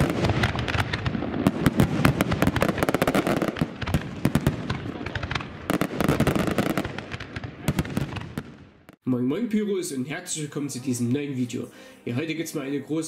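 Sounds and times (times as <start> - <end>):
fireworks booming rumbles: 0.0 - 9.0
fireworks crackling pops: 0.0 - 9.0.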